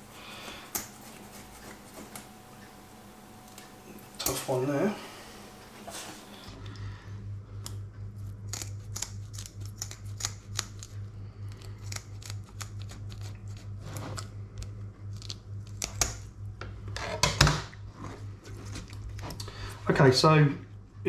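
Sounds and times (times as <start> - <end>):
scissors snipping fish fin: 8.5 - 10.9, 11.6 - 13.6.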